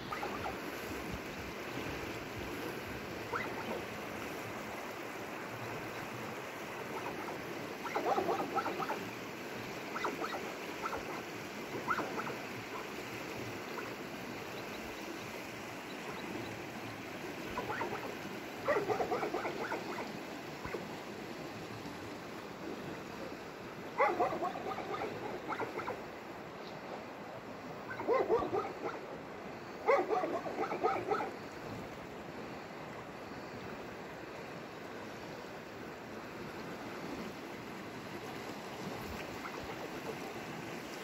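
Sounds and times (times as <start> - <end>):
river water flowing: 0.0 - 41.0
animal calls: 3.3 - 3.8, 7.0 - 9.0, 17.6 - 20.8, 27.9 - 29.0.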